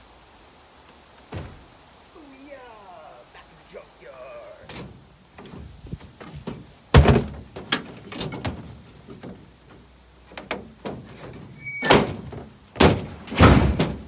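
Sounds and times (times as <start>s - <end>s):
plastic bins thudding on truck bed: 1.3s - 1.7s, 4.7s - 14.0s.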